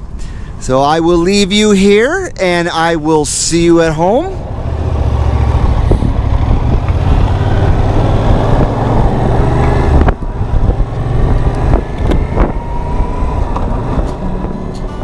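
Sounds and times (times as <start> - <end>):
motorcycle engine running: 4.4 - 15.0.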